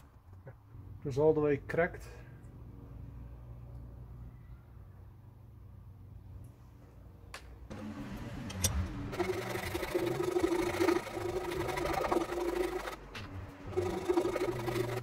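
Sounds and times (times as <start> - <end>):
hand saw cutting wood: 8.6 - 15.0.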